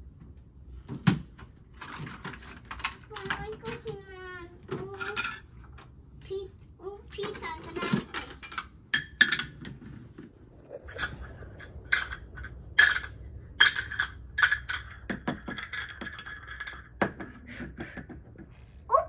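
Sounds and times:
toy pots and pans clinking: 4.7 - 5.5, 7.2 - 9.6.

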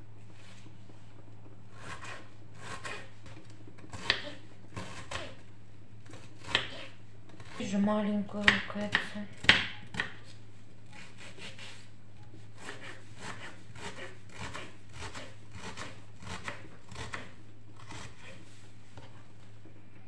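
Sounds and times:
knife chopping on wooden board: 3.9 - 5.3, 6.2 - 7.6, 8.4 - 10.3, 12.6 - 18.3.

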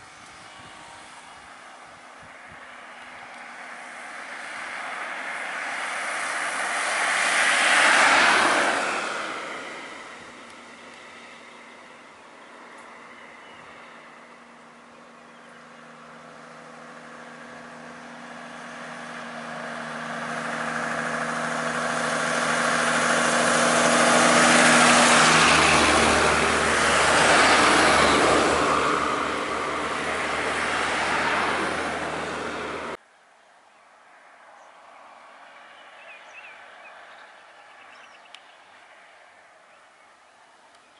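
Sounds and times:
bus driving past: 0.0 - 33.0
steady engine hum: 0.0 - 33.1.

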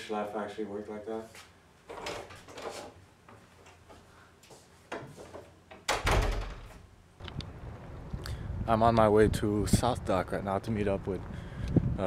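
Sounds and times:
wooden door opening and shutting: 4.9 - 7.3
door closing thud: 5.8 - 6.8.

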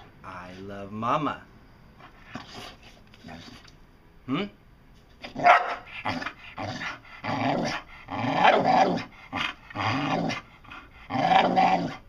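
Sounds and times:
dog moaning and grumbling: 5.2 - 12.0.

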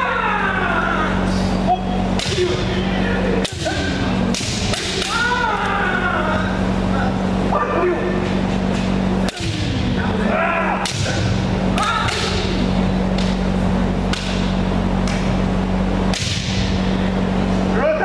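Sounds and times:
person shouting: 0.0 - 4.1, 4.8 - 8.2, 9.3 - 12.6, 17.7 - 18.0
steady low hum: 0.0 - 18.0.

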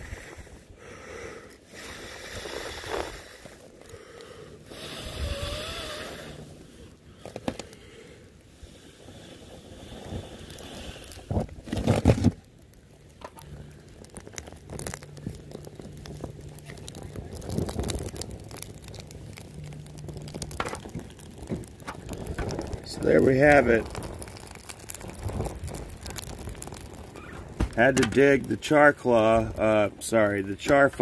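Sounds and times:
fungus scraping on bark: 9.8 - 31.0
handling noise: 27.1 - 28.4.

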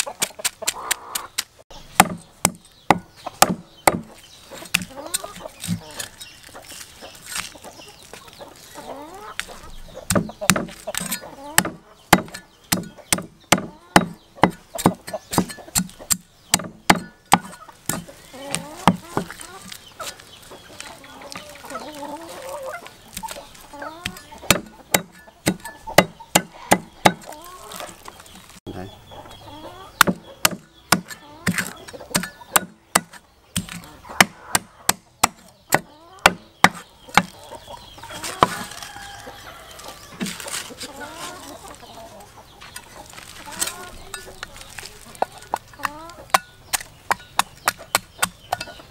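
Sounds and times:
cleaver chopping fish on wood: 0.0 - 5.8, 10.1 - 19.4, 24.0 - 27.4, 30.0 - 37.4, 46.3 - 48.8.

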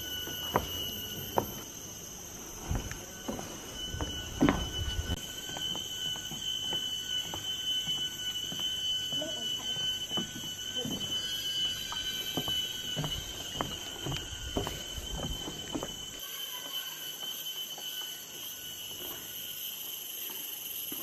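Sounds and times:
footsteps on wooden boardwalk: 0.0 - 1.7, 2.3 - 16.2
insects droning: 0.0 - 21.0.

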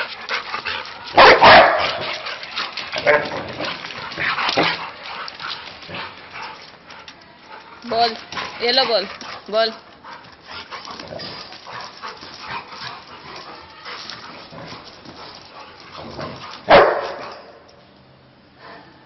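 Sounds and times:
dog barking: 1.2 - 2.0, 16.7 - 17.5.

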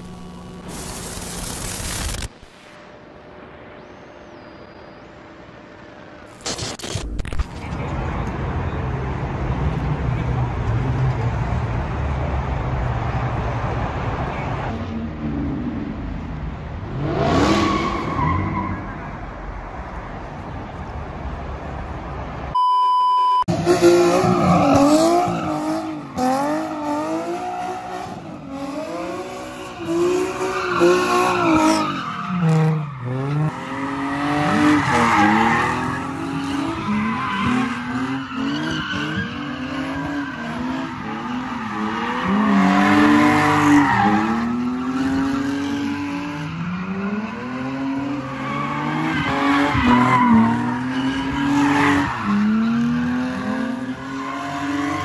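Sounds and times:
car engines revving: 7.1 - 22.5, 23.5 - 55.0
tires squealing and skidding: 17.0 - 19.4, 23.5 - 55.0
short steady beep: 22.6 - 23.5.

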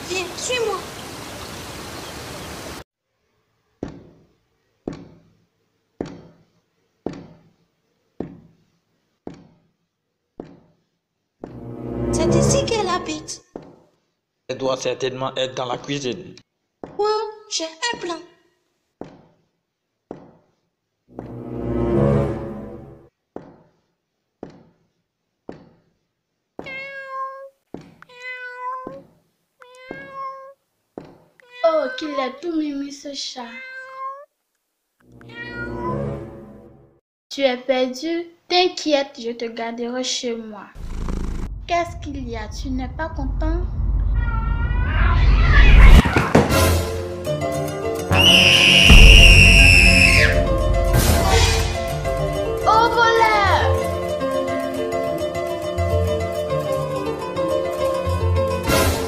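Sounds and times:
rushing water-like noise: 0.0 - 2.8
dull thuds: 3.8 - 5.3, 6.0 - 6.4, 7.0 - 7.5
cat meowing: 26.6 - 29.0, 29.6 - 30.6, 31.4 - 32.4, 33.4 - 34.3, 35.2 - 36.0, 44.1 - 46.1.

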